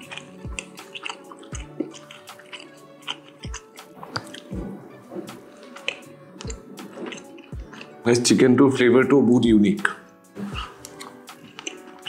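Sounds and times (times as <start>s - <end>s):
fork clicks: 0.0s - 4.5s, 10.5s - 12.0s
chewing and mouth sounds: 0.0s - 8.1s, 9.9s - 12.0s
soft background music: 0.0s - 12.0s.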